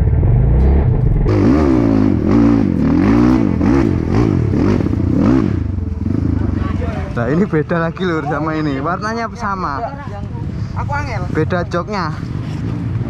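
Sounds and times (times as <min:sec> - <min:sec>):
dirt bike engine revving: 0:00.0 - 0:07.5.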